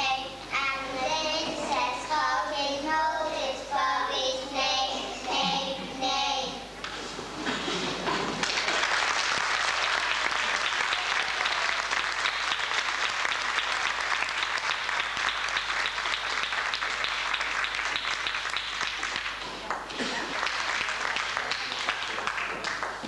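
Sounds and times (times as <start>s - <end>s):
audience applauding: 8.1s - 23.0s.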